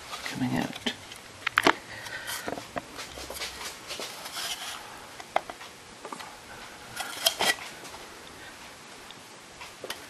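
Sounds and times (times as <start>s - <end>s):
metallic clicks and scrapes: 4.2s - 4.8s, 7.0s - 7.7s.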